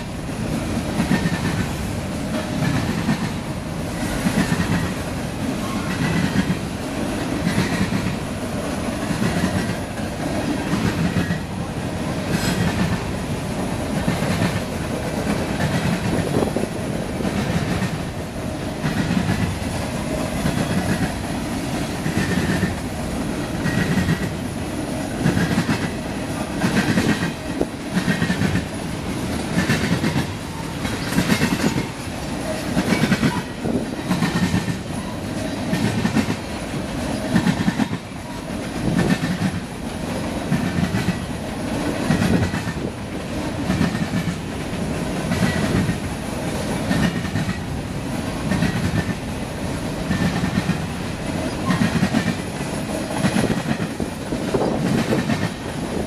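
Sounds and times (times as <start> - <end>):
freight train rumble: 0.0 - 56.0
train wheels clacking over rails: 0.0 - 56.0.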